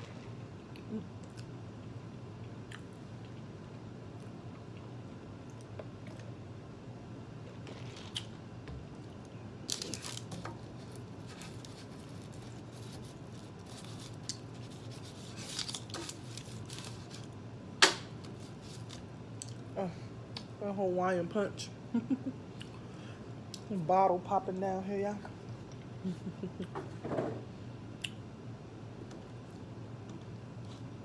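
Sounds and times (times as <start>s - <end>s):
low steady hum: 0.0s - 31.0s
scraping and rustling on paper: 9.7s - 17.3s, 18.3s - 19.0s.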